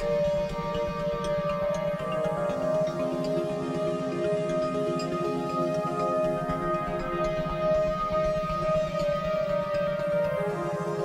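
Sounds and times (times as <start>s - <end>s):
calm instrumental music: 0.0s - 11.0s.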